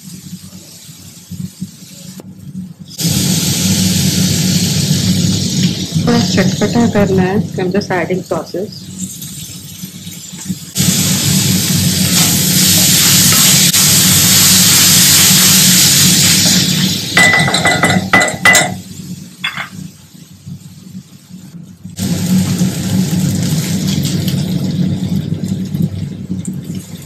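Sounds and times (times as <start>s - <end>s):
food sizzling in a pan: 0.0s - 27.0s
metal spoon clinking on pan: 17.2s - 18.8s.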